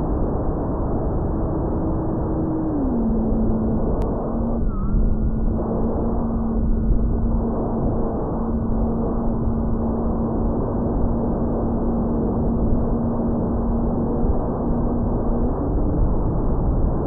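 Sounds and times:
wind rushing on microphone: 0:00.0 - 0:17.0.

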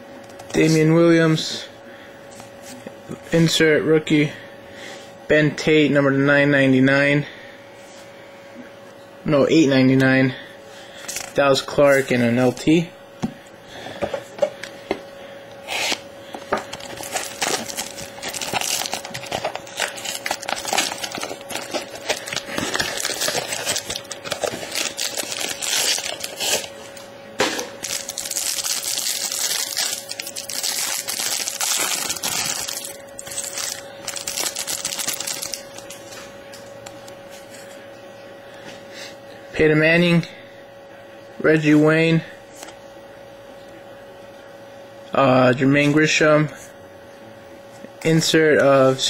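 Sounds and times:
foil wrapper crinkling: 0:16.6 - 0:27.0, 0:27.8 - 0:36.0.

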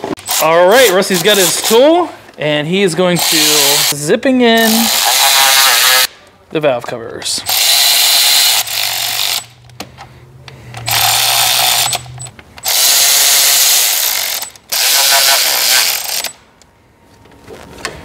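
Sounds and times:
power tool zipping bolts: 0:07.5 - 0:09.5, 0:10.8 - 0:16.4.

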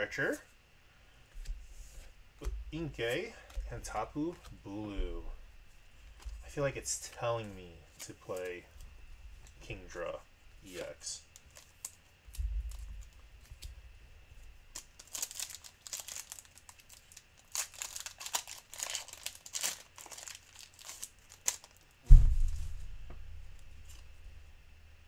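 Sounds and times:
foil wrapper crinkling and tearing: 0:10.7 - 0:13.8, 0:14.7 - 0:22.0
dull low thump: 0:22.1 - 0:24.3.

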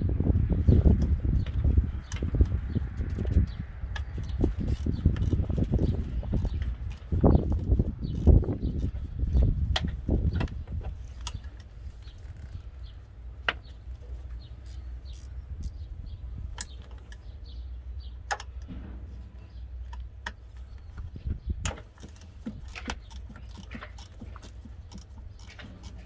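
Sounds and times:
steady low rumble: 0:00.0 - 0:26.0
metallic clicks of hand tools: 0:21.6 - 0:26.0.

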